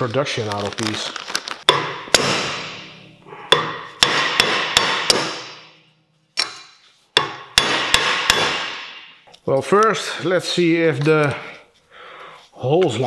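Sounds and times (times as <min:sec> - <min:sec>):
hammer striking metal hub: 0:03.5 - 0:05.8, 0:06.4 - 0:09.2.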